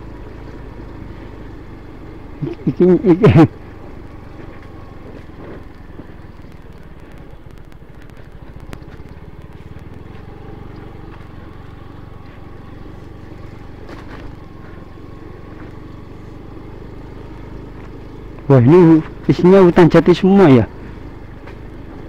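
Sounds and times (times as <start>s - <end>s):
scooter engine running: 0.0s - 22.0s.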